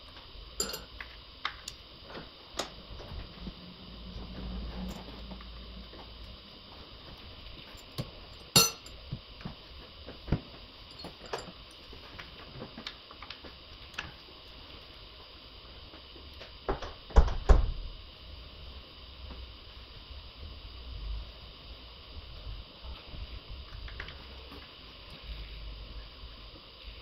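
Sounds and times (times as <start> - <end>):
ringing metallic clink: 0.6 - 0.9, 8.6 - 8.9
tools clicking and clinking: 0.6 - 0.9, 8.6 - 8.9.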